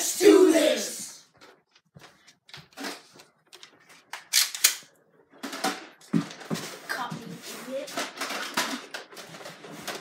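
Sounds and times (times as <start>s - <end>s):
plastic toy blasters clicking: 4.2s - 4.9s.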